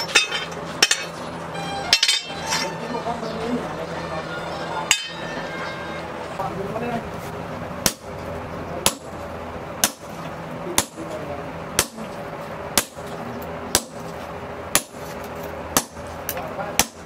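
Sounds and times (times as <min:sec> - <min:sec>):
hammer striking hot steel on anvil: 0:01.9 - 0:02.8, 0:04.9 - 0:05.2, 0:07.8 - 0:08.1, 0:08.8 - 0:09.1, 0:09.8 - 0:11.2, 0:11.8 - 0:13.1, 0:13.7 - 0:14.1, 0:14.7 - 0:17.0.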